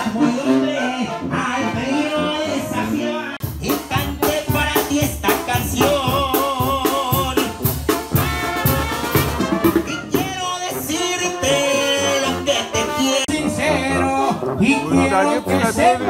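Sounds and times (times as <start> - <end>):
man singing into a microphone: 0.0 - 7.7, 9.9 - 16.0
brass band playing: 0.0 - 16.0
drums keeping a beat: 3.4 - 11.6.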